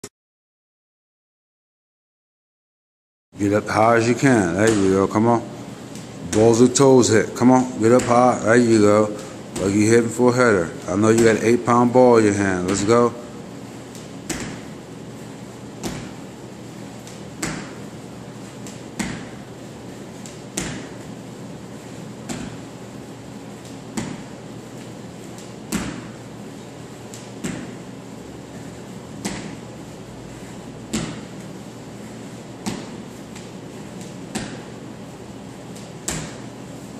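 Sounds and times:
steady low hum: 3.4s - 36.9s
feet landing on wooden floor: 13.9s - 14.8s, 15.8s - 16.3s, 17.0s - 17.9s, 18.6s - 19.5s, 20.2s - 21.2s, 22.2s - 22.8s, 23.6s - 26.2s, 27.1s - 27.9s, 29.2s - 29.6s, 30.8s - 31.6s, 32.6s - 34.8s, 35.7s - 36.6s.

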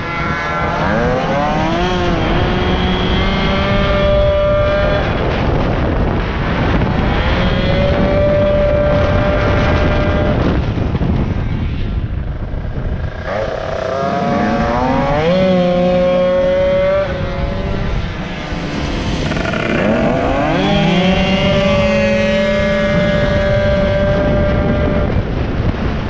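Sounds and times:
moped engine revving: 12.6s - 25.4s.

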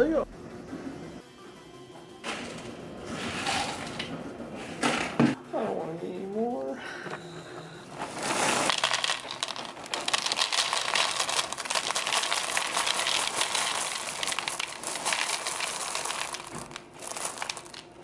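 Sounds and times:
dry cereal pouring into bowl: 2.3s - 4.1s, 8.0s - 18.0s
crinkling: 7.9s - 18.0s.

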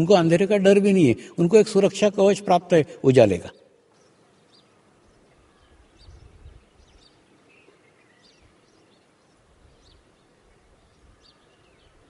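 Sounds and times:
small birds chirping: 3.2s - 12.0s.

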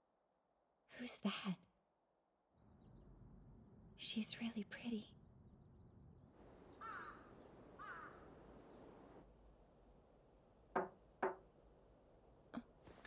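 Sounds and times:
crows cawing: 6.8s - 8.4s
knocks on a door: 10.7s - 11.4s.

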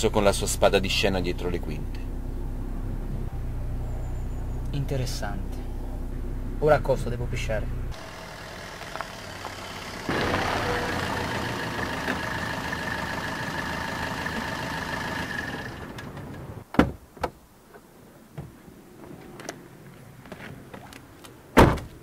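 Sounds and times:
car engine running: 0.1s - 16.6s.

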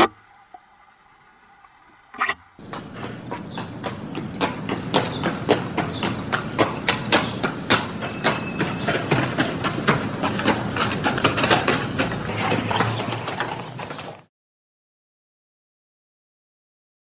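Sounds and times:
horse cropping and chewing grass: 8.4s - 14.0s.

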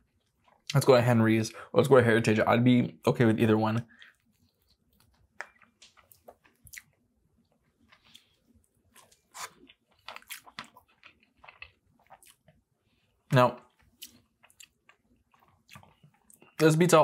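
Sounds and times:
batter crunching: 3.9s - 12.6s
chewing fried fish: 3.9s - 16.6s.

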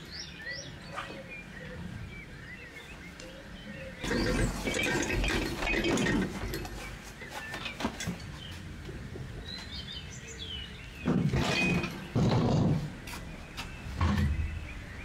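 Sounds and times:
birds chirping faintly: 0.0s - 15.0s
hand truck rolling and rattling: 4.0s - 9.8s, 11.0s - 13.3s.

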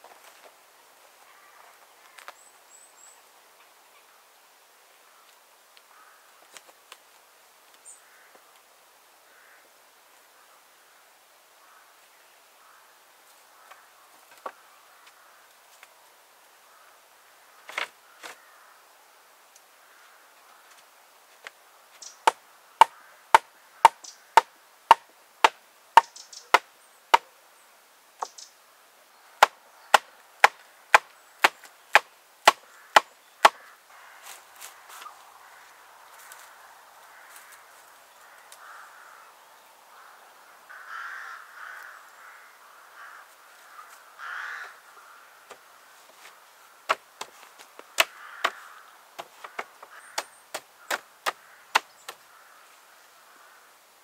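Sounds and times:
soft rustling: 45.4s - 50.1s
sharp wooden knocks: 48.0s - 48.6s, 49.2s - 52.2s.

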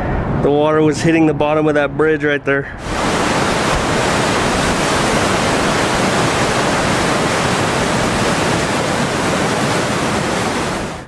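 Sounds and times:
floodwater rushing: 2.8s - 11.0s.

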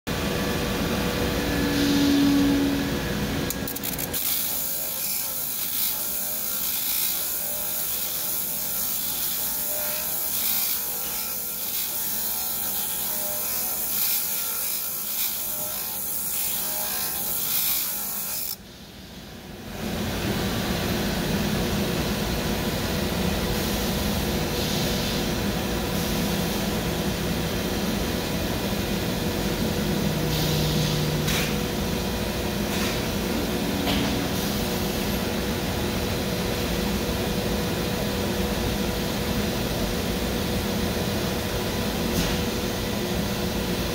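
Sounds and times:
grinder motor hum: 0.1s - 18.6s
steel grinding on grinder wheel: 3.5s - 18.6s.

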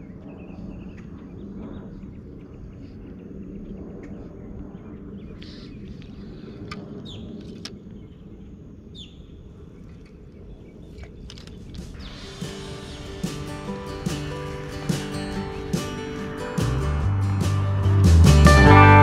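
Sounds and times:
low rumble: 12.0s - 19.0s.

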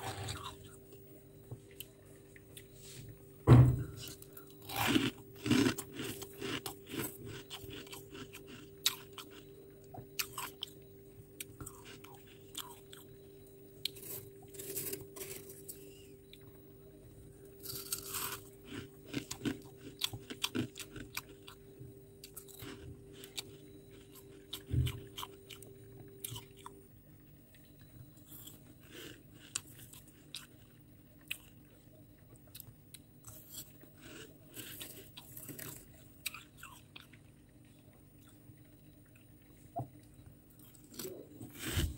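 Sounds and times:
crunching and chewing frost: 0.0s - 2.8s, 4.0s - 41.9s
faint steady hum: 0.0s - 41.9s
dull thump: 3.4s - 4.0s.

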